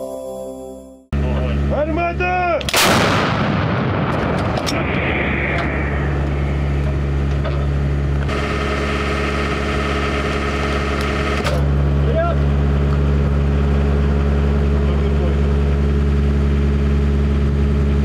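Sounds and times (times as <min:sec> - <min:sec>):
steady engine hum: 0:01.1 - 0:18.0
howitzer firing blast: 0:02.6 - 0:11.4.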